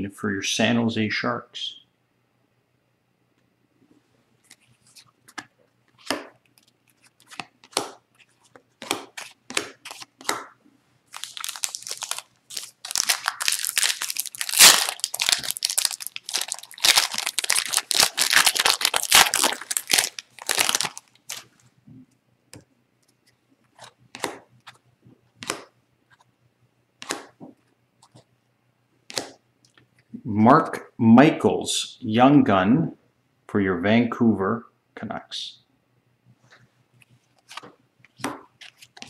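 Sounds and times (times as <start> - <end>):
cards shuffled by hand: 4.4 - 21.6, 37.0 - 39.0
foil wrapper tearing and crinkling: 11.1 - 21.5.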